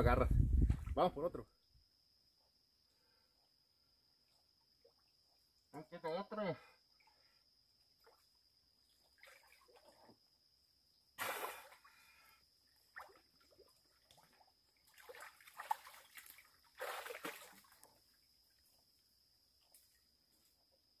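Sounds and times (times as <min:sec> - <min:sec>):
water splashing and sloshing: 0:07.9 - 0:10.3, 0:11.2 - 0:18.7.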